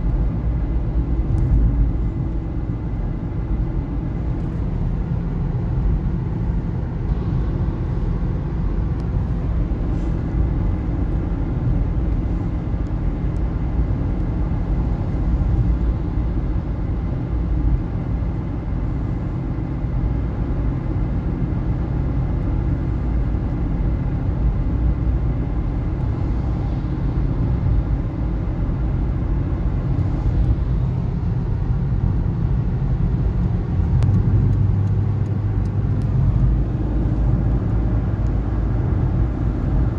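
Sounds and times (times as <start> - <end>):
car engine and tyres rumbling: 0.0 - 39.9.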